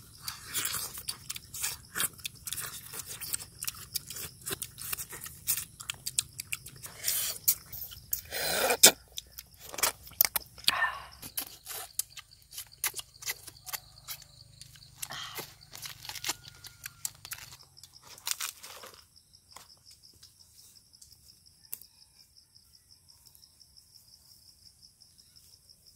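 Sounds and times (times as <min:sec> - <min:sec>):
people chewing and crunching: 0:00.0 - 0:19.8
crickets chirring: 0:00.0 - 0:25.9.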